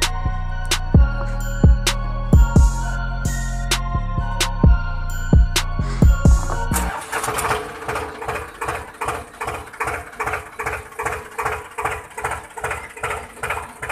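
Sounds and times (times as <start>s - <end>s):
background music: 0.0s - 7.7s
small motor whining and ticking: 6.2s - 13.9s.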